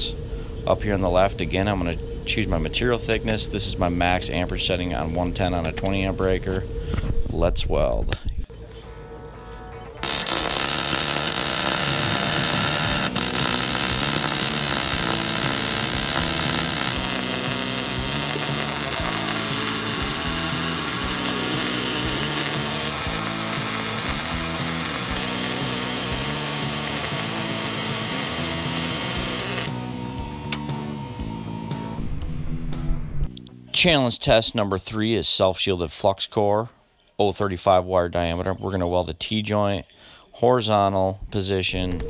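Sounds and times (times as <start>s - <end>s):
welding arc buzzing: 10.0s - 30.6s.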